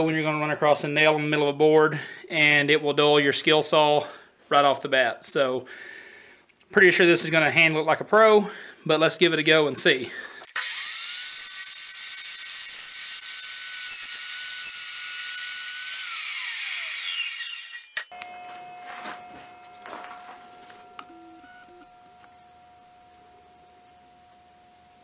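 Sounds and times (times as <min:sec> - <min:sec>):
chop saw whining: 0:10.4 - 0:22.9
saw blade cutting wood: 0:10.5 - 0:18.2
faint steady tone: 0:18.1 - 0:25.0.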